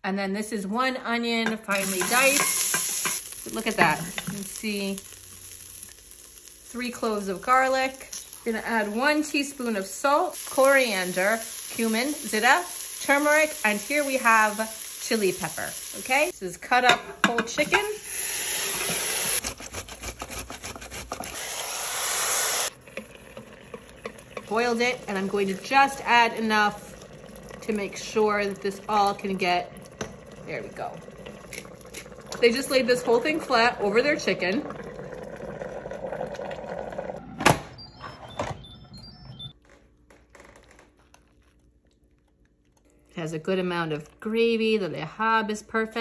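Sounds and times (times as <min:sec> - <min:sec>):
metal bowl clanking on metal: 0:01.4 - 0:03.2, 0:16.8 - 0:17.9
chicken sizzling in hot oil: 0:01.7 - 0:16.4, 0:17.7 - 0:19.4, 0:21.2 - 0:29.0.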